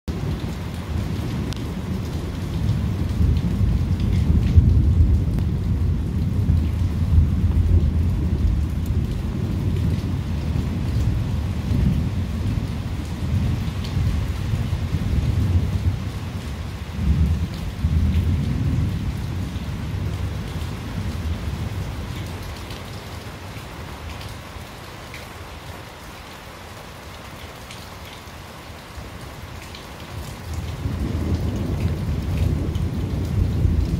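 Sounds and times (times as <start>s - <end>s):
steady rain: 0.1s - 33.9s
rolling thunder: 1.2s - 22.0s, 30.2s - 33.9s.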